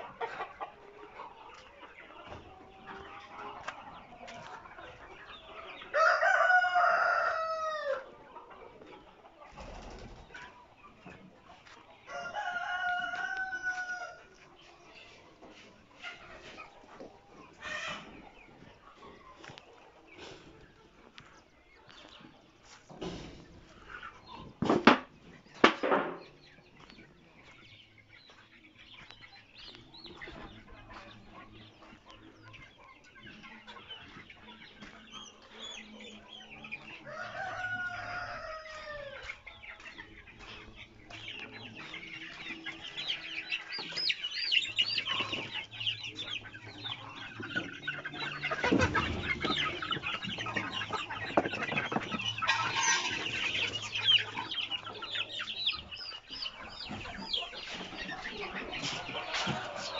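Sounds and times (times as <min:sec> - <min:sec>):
chickens clucking: 0:00.0 - 0:59.9
rooster crowing: 0:06.0 - 0:08.0, 0:12.1 - 0:14.2.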